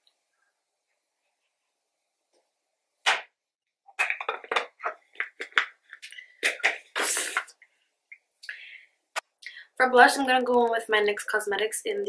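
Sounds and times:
makeup containers clattering on table: 4.0 - 5.8.

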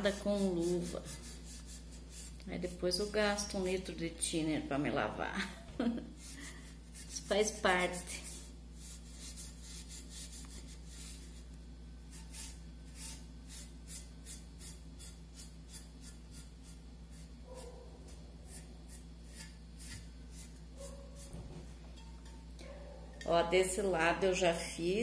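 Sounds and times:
scratchy rubbing strokes: 0.0 - 2.4, 6.2 - 11.5, 12.1 - 21.5.

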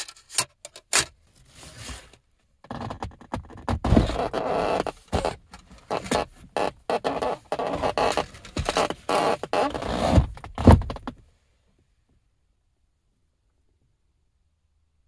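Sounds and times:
rustling and scraping of handled things: 0.0 - 2.3.

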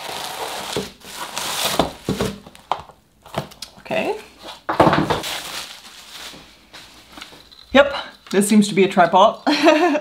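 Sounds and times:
bubble wrap crinkling: 0.0 - 3.5, 5.2 - 8.5.

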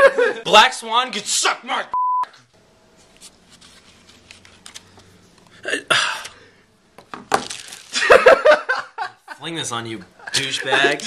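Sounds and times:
censor bleep: 1.9 - 2.3.

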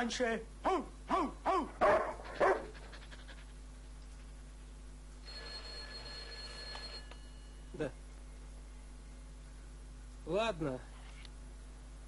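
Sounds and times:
dog barks: 0.7 - 2.8
telephone ringing: 5.2 - 7.7.

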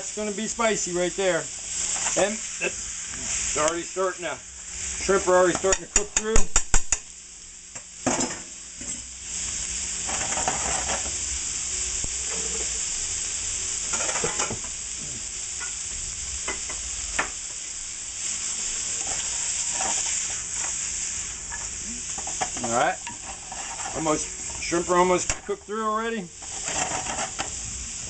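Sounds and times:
food sizzling in hot oil: 0.0 - 28.0
spatula scraping a pan: 10.0 - 11.2, 18.3 - 24.8, 26.4 - 27.6.

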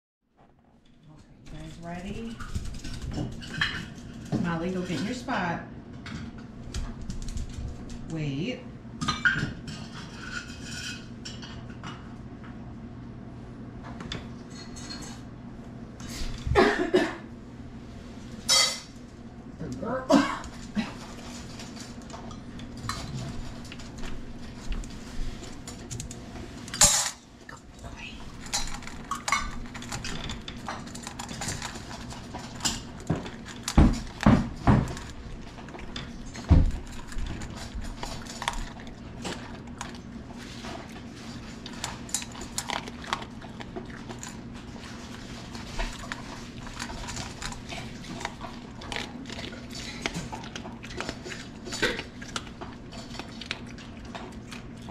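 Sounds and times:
dog crunching kibble: 1.4 - 5.4, 20.4 - 54.9
metal bowl clattering: 18.5 - 18.9.

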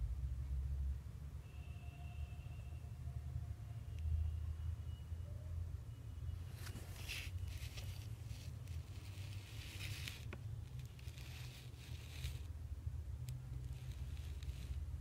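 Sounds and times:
steady low hum: 0.0 - 1.4
rustling over paper: 6.5 - 12.6, 13.5 - 15.0.

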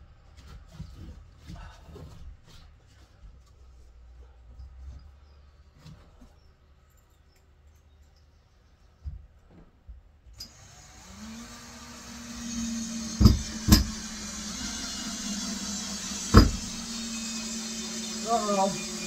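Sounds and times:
cordless screwdriver motor: 10.4 - 19.0
sharp knocks: 13.1 - 14.1, 16.2 - 16.7.

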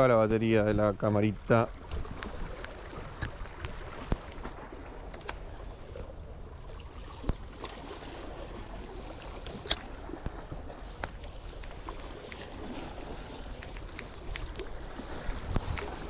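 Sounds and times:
wind buffeting microphone: 8.5 - 16.0.

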